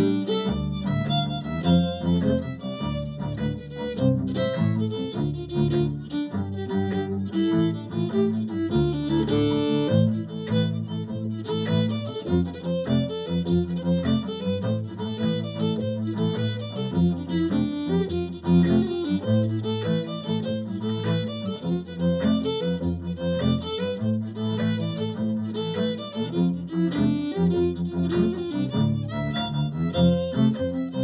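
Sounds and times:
fiddle playing a jig: 0:00.0 - 0:31.0.

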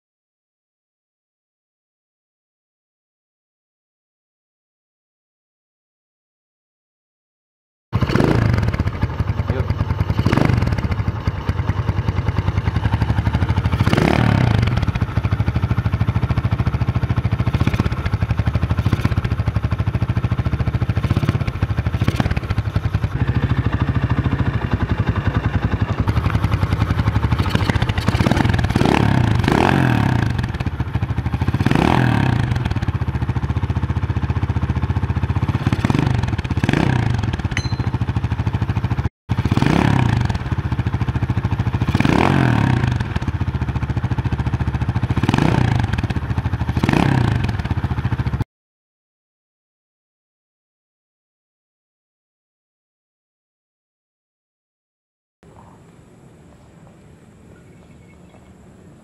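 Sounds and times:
motorcycle engine idling: 0:08.0 - 0:48.4.

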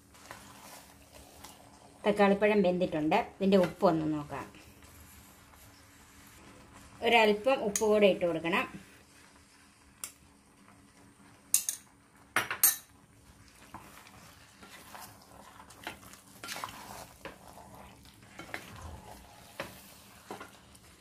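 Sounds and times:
wooden spatula scraping pan: 0:00.0 - 0:02.1, 0:13.5 - 0:21.0
metal spoon clinking on pan: 0:11.5 - 0:12.9.

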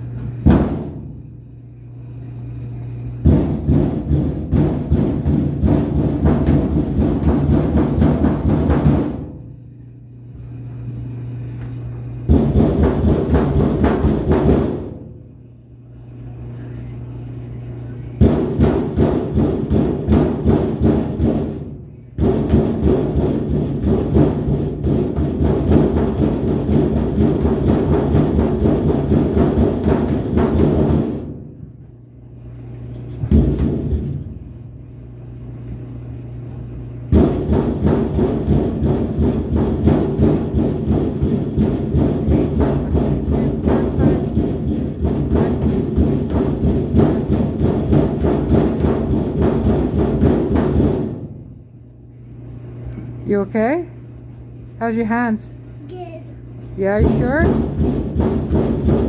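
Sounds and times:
low hum: 0:00.0 - 0:49.8
fists thumping sheet-metal panel: 0:00.4 - 0:01.2, 0:03.2 - 0:09.4, 0:12.3 - 0:15.1, 0:18.2 - 0:31.6, 0:33.2 - 0:34.4, 0:37.1 - 0:51.5, 0:56.9 - 0:59.0.

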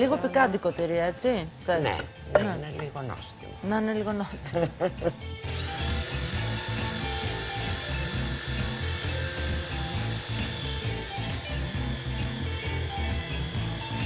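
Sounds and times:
background music with low beat: 0:04.6 - 0:14.0
electric grater motor whining: 0:05.3 - 0:14.0.

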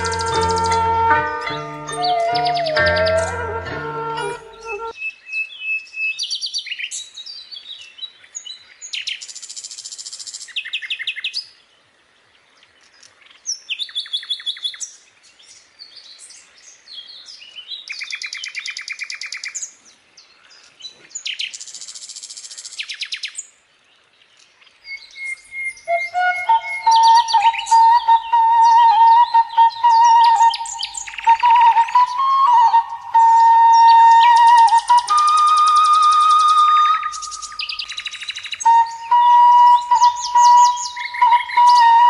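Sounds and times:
bird chirps and trills: 0:00.0 - 0:07.0, 0:24.8 - 0:42.0.

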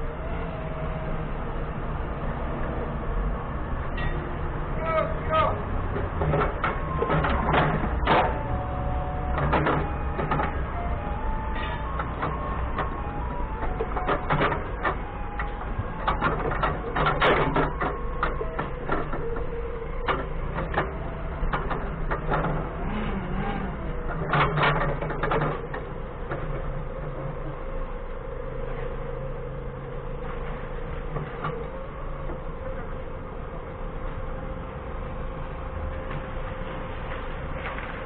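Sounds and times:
forklift engine running: 0:00.0 - 0:38.0
metallic clanks and rattles: 0:05.9 - 0:27.4.

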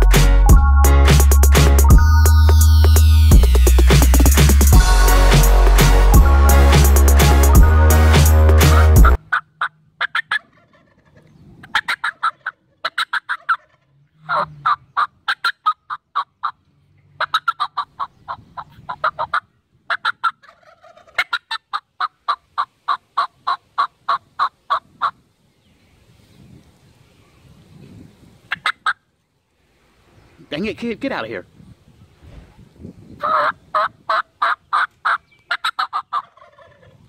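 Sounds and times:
electronic music: 0:00.0 - 0:09.2
turkeys gobbling: 0:09.1 - 0:16.6, 0:17.2 - 0:25.2, 0:28.5 - 0:29.1, 0:33.2 - 0:37.0.

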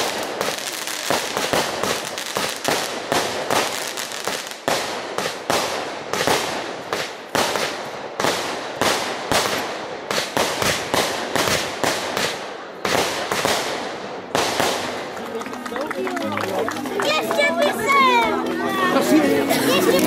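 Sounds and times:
fireworks banging: 0:00.0 - 0:15.3.

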